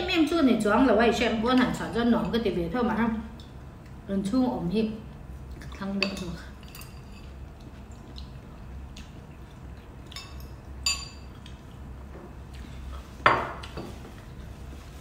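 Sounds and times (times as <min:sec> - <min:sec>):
spoons clinking on ceramic bowls: 0:10.1 - 0:11.3.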